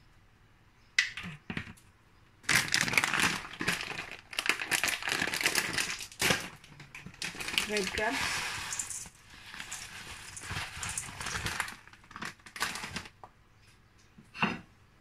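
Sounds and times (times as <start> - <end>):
plastic packet crinkling: 2.4 - 13.2.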